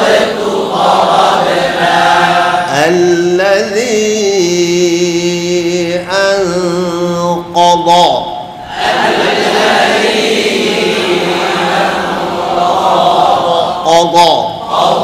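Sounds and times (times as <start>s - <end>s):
man chanting into a microphone: 2.4s - 8.6s, 13.6s - 14.7s.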